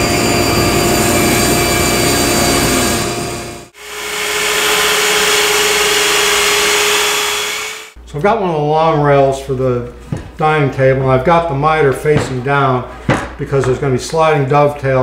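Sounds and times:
miter saw with dust extraction: 0.0s - 8.0s
table saw ripping wood: 0.0s - 8.0s.

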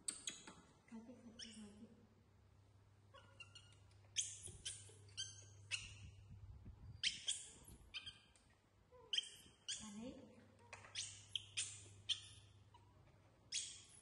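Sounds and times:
monkeys squeaking: 1.4s - 1.7s, 3.1s - 6.2s, 6.9s - 14.0s.

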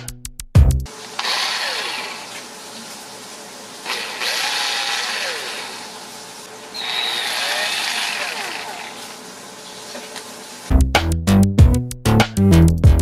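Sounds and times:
drill motor running and winding down: 0.9s - 2.6s, 3.8s - 9.4s.

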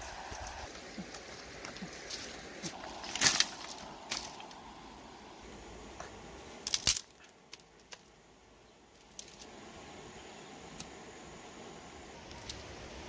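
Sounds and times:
clatter of dry sticks on gravel: 1.0s - 4.6s, 6.6s - 8.1s, 9.0s - 9.5s.

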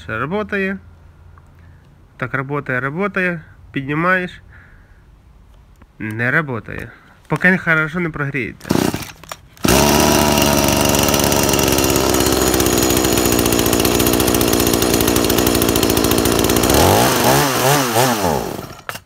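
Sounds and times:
chainsaw engine revving: 8.6s - 19.0s.

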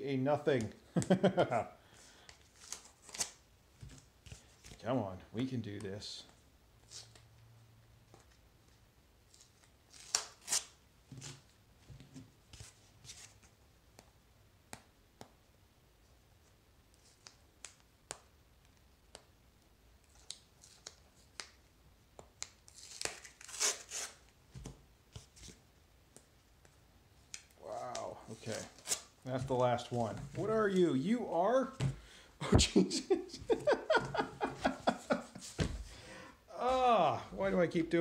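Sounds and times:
tape peeling off cardboard: 2.6s - 3.4s, 9.4s - 11.5s, 22.4s - 24.3s
tape tearing rips: 2.6s - 3.4s, 9.4s - 11.4s, 22.4s - 24.3s, 28.6s - 29.1s.

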